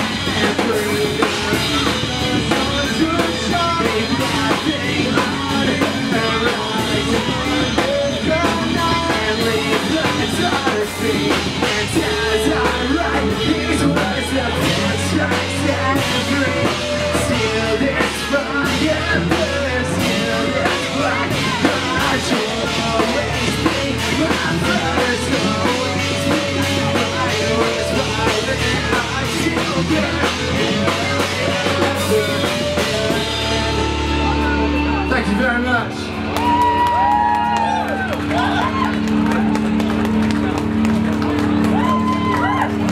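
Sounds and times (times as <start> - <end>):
drum kit with cymbals: 0.0 - 35.4
bass guitar: 0.0 - 42.9
electric guitars: 0.0 - 42.9.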